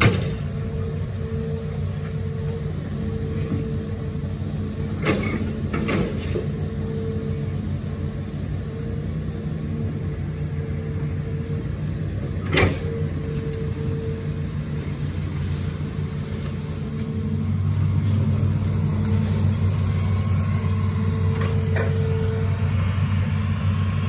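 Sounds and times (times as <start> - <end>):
faint steady whine: 0.0 - 5.7, 6.4 - 24.0
excavator engine and hydraulics: 0.0 - 24.0
metal clanks from excavator bucket: 4.7 - 6.6.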